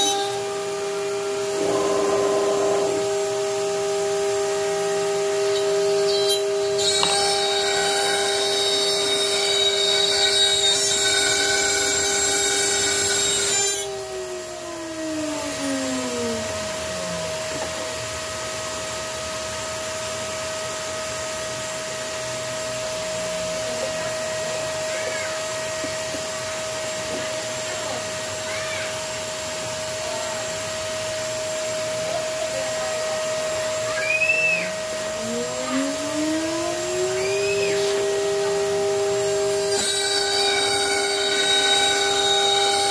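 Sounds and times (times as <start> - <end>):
router spindle whine: 0.0 - 42.9
vacuum motor winding down: 0.0 - 42.9
vacuum hose hissing: 1.0 - 4.0.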